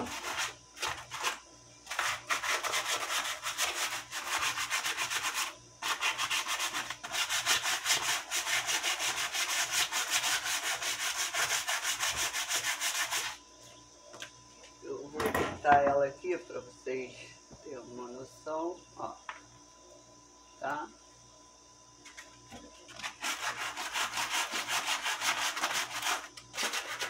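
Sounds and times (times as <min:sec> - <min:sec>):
sandpaper rubbing on branch: 0:00.0 - 0:13.4, 0:23.0 - 0:27.0.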